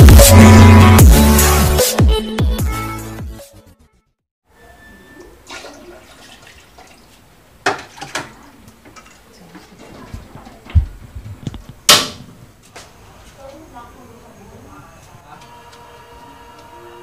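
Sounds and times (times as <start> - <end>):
water sloshing in pot: 5.2 - 10.7
metal pot clanking: 7.6 - 10.6.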